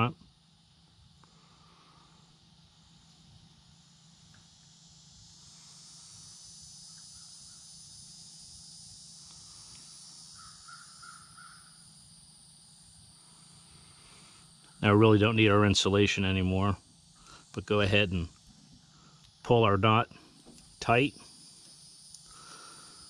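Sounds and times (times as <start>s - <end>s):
high insect drone: 0.0s - 23.0s
bird calling: 10.3s - 11.8s.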